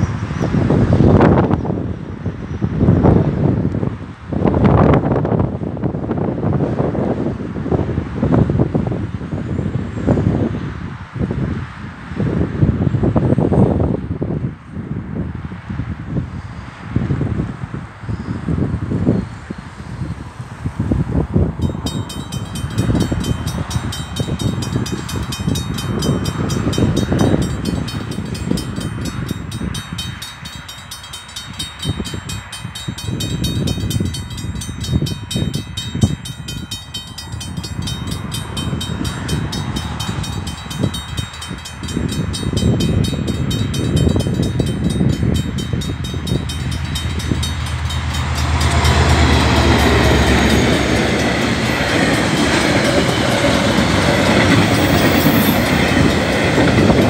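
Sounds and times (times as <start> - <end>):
diesel locomotive engine drone: 0.0 - 57.0
train rumble: 0.0 - 57.0
level crossing warning bells: 21.6 - 57.0.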